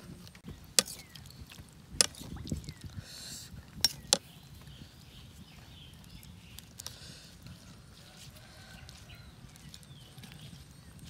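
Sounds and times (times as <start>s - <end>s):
soft chewing: 5.4s - 11.0s.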